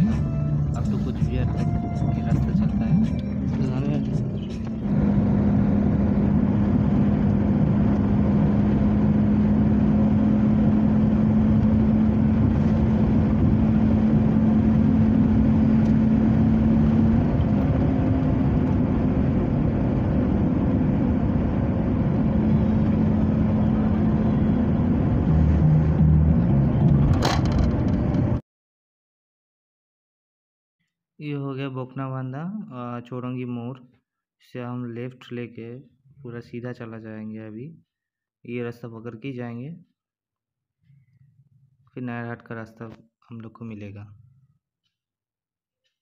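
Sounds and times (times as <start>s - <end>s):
car engine hum: 0.0s - 28.4s.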